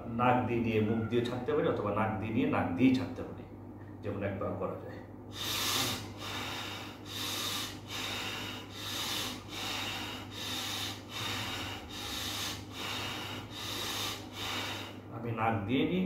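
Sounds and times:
man breathing forcefully through nose: 5.3 - 15.1.

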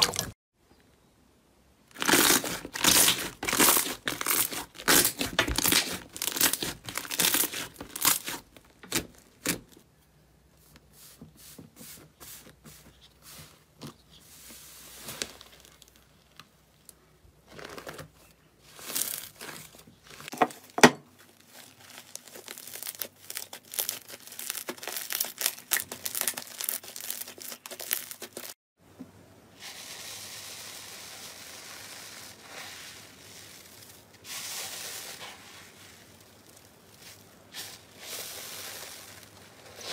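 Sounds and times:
slime crackling and popping: 1.9 - 9.8, 21.2 - 28.6.

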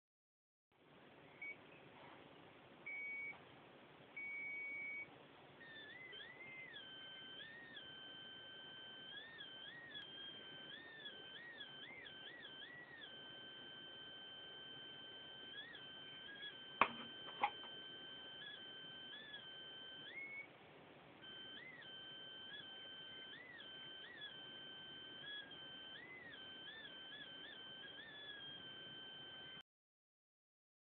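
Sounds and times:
high-pitched electronic whine: 4.2 - 20.5, 21.2 - 29.6.

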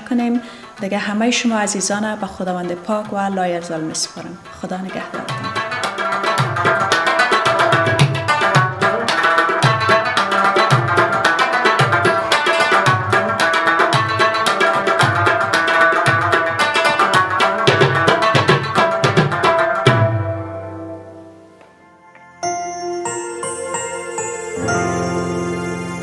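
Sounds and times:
instrumental music with drum beat: 2.4 - 21.0.

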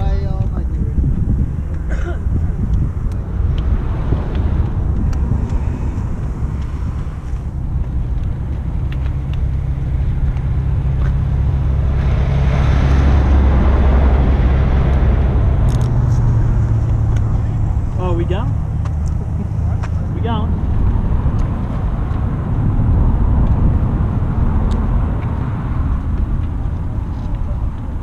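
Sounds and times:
motorcycle engines idling: 16.0 - 20.9.

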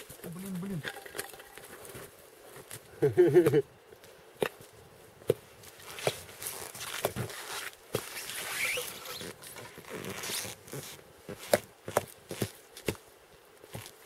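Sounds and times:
rustling and scraping: 5.4 - 14.0
short rising squeak: 8.2 - 9.4.

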